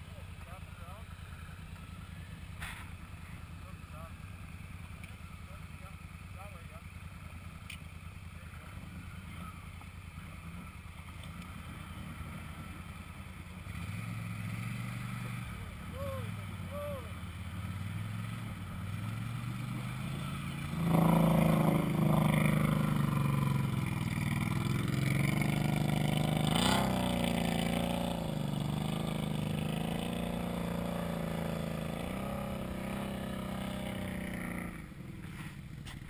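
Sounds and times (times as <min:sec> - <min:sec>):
atv engine revving: 0:00.0 - 0:36.0.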